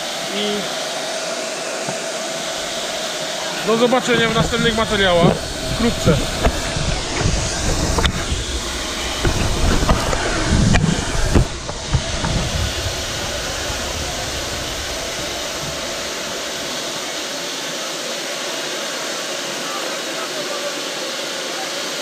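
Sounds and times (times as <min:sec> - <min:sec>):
steam locomotive hissing: 0:02.1 - 0:22.0
knocks: 0:04.2 - 0:16.7
low rumble: 0:04.2 - 0:17.2.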